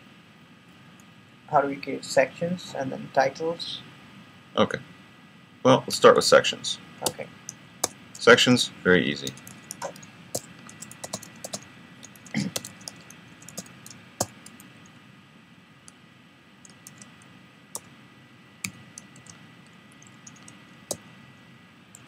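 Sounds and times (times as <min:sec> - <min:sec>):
typing on computer keyboard: 0:09.2 - 0:14.7, 0:16.7 - 0:17.2, 0:18.6 - 0:20.6.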